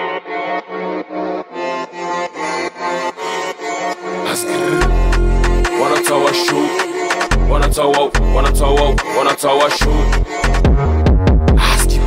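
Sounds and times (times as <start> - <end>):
held synth tone: 3.2 - 8.8
deep bass note: 4.0 - 9.0.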